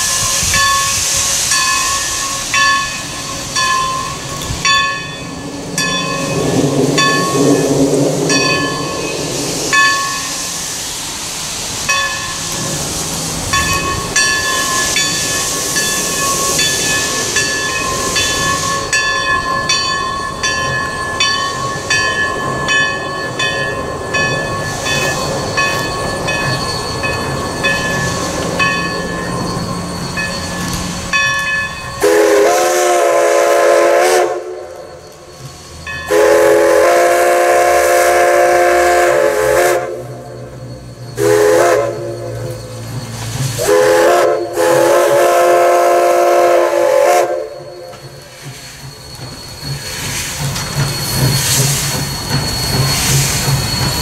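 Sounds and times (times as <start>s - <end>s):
steam locomotive chime whistle: 0.0s - 10.8s, 13.4s - 54.0s
bell ringing: 0.6s - 10.4s, 13.5s - 32.1s.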